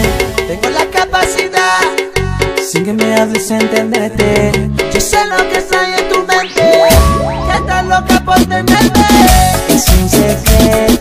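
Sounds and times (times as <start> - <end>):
upbeat latin dance music: 0.0 - 11.0.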